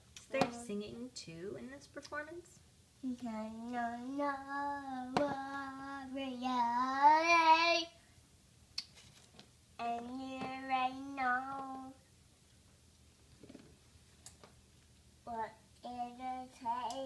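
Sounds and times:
girl singing: 3.0s - 8.0s, 9.8s - 12.1s, 15.3s - 17.0s.

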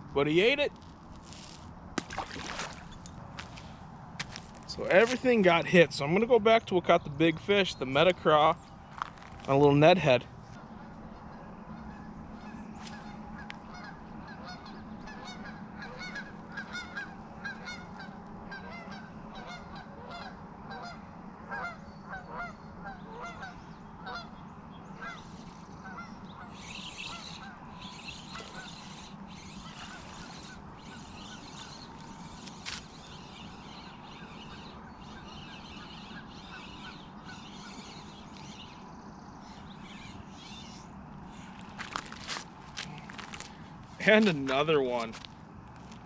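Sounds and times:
low background hum: 0.0s - 46.0s
geese honking: 11.8s - 24.3s, 25.0s - 43.5s.

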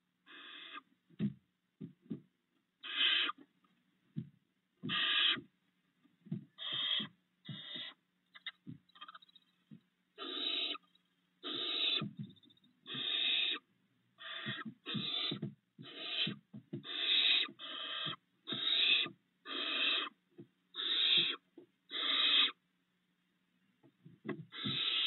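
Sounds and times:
owl chicks hissing: 0.3s - 0.9s, 2.8s - 3.4s, 4.8s - 5.5s, 6.6s - 9.2s, 10.2s - 12.2s, 12.8s - 20.2s, 20.8s - 22.6s, 24.5s - 25.0s
soft low thumps: 1.1s - 2.3s, 4.1s - 5.5s, 6.2s - 10.0s, 12.0s - 12.8s, 14.4s - 16.9s.

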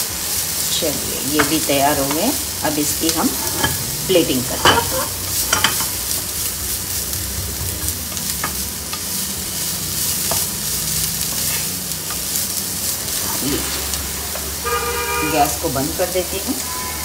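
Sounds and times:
vegetables sizzling in a pan: 0.0s - 17.0s
wooden spatula scraping a pan: 1.3s - 6.0s, 7.8s - 12.4s.

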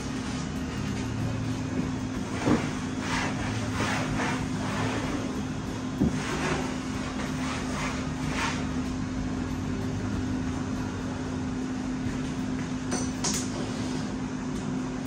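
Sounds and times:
appliance humming: 0.0s - 15.0s.

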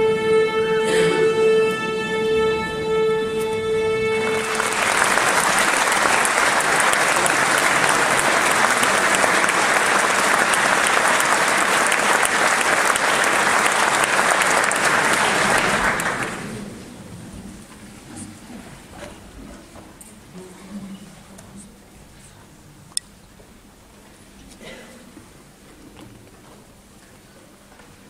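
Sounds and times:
audience applauding: 4.1s - 16.8s.

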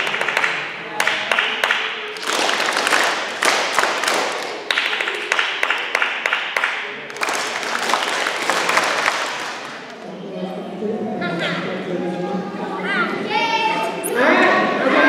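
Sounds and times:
group of people clapping: 0.0s - 10.1s.

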